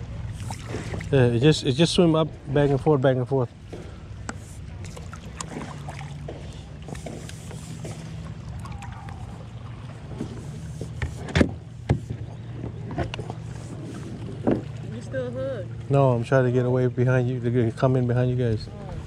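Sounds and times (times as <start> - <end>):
paddle knocking kayak: 0.0 - 19.0
paddle splashing water: 0.0 - 19.0
steady low hum: 0.0 - 19.0.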